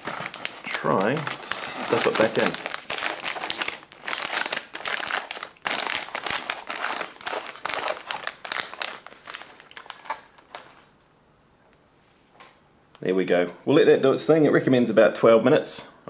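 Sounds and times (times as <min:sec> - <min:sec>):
plastic bag crinkling: 0:00.0 - 0:10.9.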